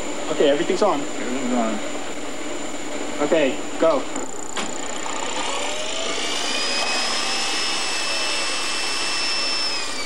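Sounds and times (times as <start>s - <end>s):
machine motor whine: 0.0s - 10.0s.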